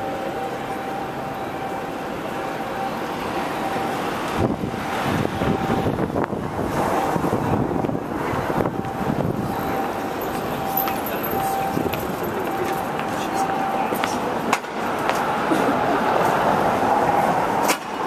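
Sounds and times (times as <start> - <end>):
traffic: 0.0 - 18.0
wind gusting on microphone: 4.3 - 10.7
thin steady tone: 8.7 - 14.4.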